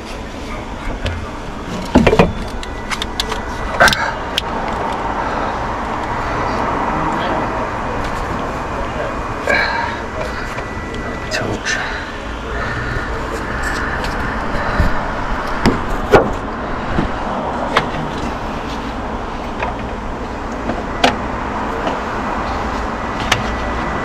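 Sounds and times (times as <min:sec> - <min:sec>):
steady background hum: 0:00.0 - 0:24.0.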